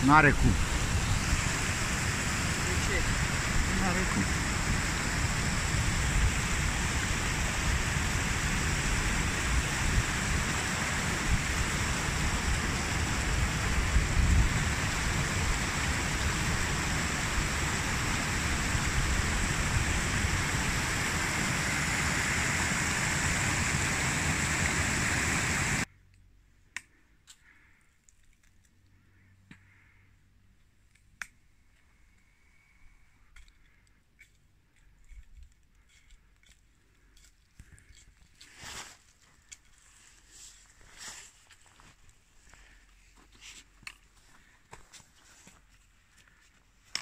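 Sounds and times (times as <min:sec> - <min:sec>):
waterfall rushing: 0:00.0 - 0:25.9.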